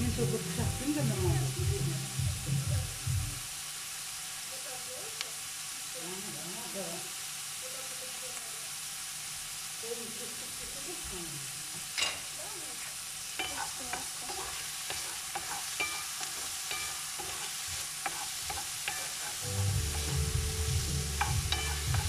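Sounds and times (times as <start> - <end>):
onions sizzling in a frying pan: 0.0 - 22.0
wooden spatula scraping a pan: 12.8 - 22.0.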